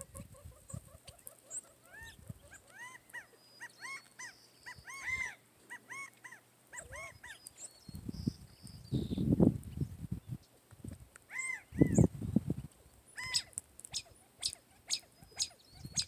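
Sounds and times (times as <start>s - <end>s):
animal yelping: 0.0s - 7.4s, 13.2s - 16.0s.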